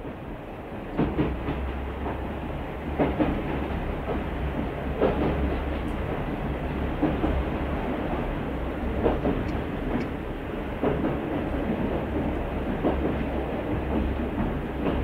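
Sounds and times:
train rumbling on rails: 0:00.0 - 0:15.0.

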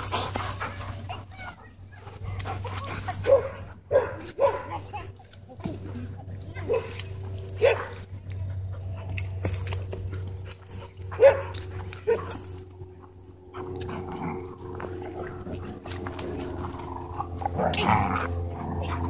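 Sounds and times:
dogs wrestling: 0:00.0 - 0:19.0
dog barking: 0:03.3 - 0:05.0, 0:06.6 - 0:07.0, 0:07.6 - 0:08.0, 0:11.2 - 0:12.4.

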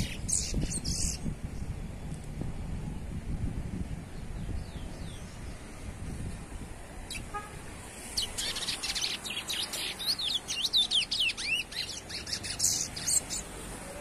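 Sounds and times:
finch singing whistled notes: 0:00.0 - 0:01.2, 0:08.1 - 0:13.5.

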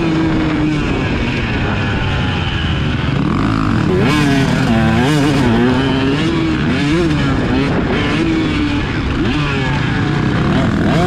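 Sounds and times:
motocross bike engine revving: 0:00.0 - 0:11.0.

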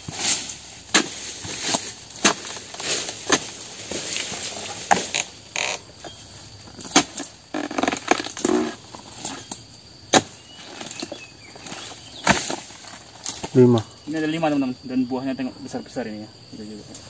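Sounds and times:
chisel knocking into fruit stalk: 0:00.9 - 0:02.6
fruit bunch dropping: 0:06.7 - 0:13.6.

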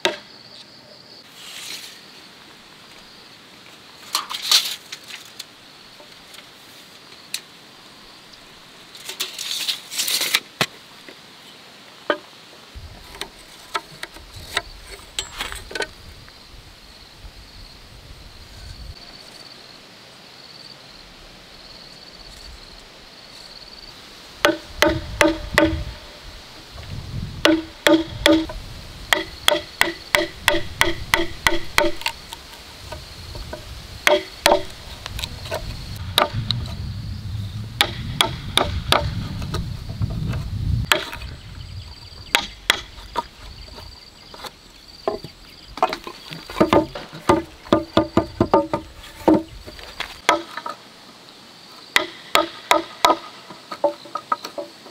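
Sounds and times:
high insect drone: 0:00.0 - 0:54.9
hammer striking chisel into wood: 0:24.4 - 0:26.0, 0:27.4 - 0:32.1, 0:34.1 - 0:34.7, 0:37.8 - 0:39.1, 0:52.0 - 0:53.2.

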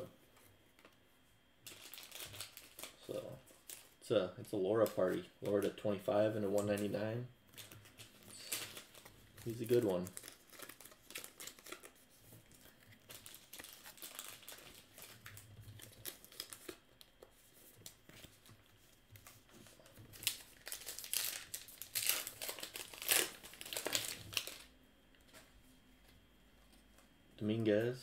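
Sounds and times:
wrapper tearing: 0:01.6 - 0:03.0, 0:07.6 - 0:12.0, 0:12.6 - 0:16.8, 0:20.1 - 0:24.7
wrapper crinkling: 0:01.6 - 0:04.0, 0:07.5 - 0:17.1, 0:19.2 - 0:24.7.

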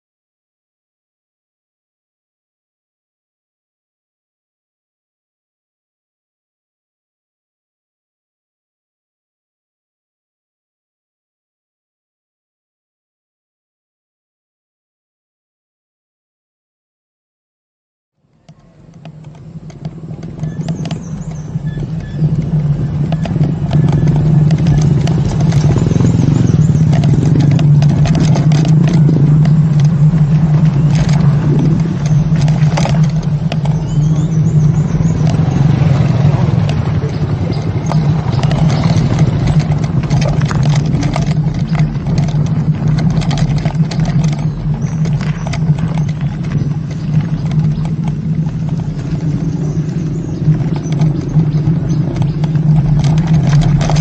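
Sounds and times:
electric scooter hum: 0:18.2 - 0:54.0
wind and road noise: 0:18.2 - 0:54.0
clicks and rattles: 0:18.4 - 0:54.0.

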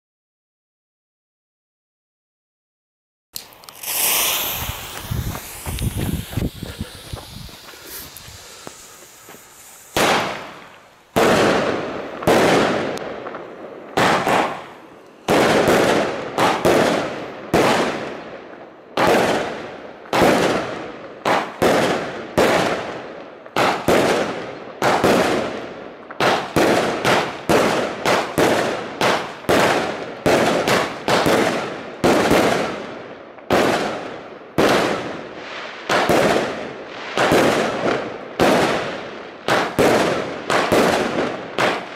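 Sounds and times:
firework battery bangs: 0:03.4 - 0:18.2.

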